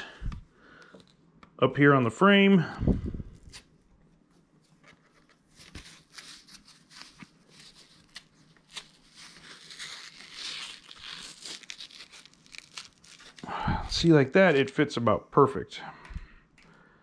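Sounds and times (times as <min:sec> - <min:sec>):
rubber strap rustling and crinkling: 0:03.4 - 0:14.9
small clicks and rubs: 0:04.3 - 0:05.9.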